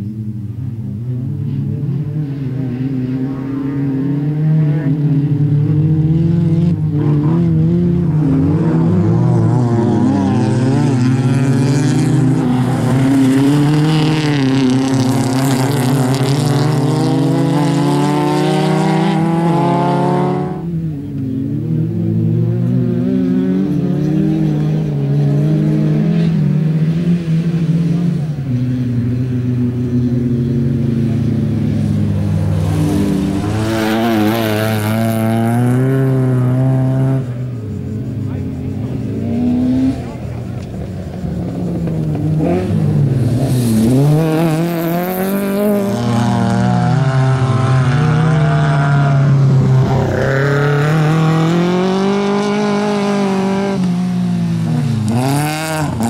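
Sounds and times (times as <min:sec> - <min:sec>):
racing car engines at full throttle: 0:00.0 - 0:56.0.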